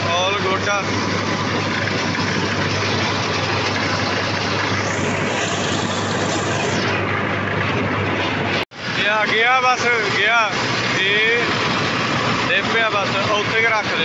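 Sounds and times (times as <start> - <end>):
tractor engine running under load: 0.0 - 14.0
mulcher shredding stubble: 0.6 - 7.0.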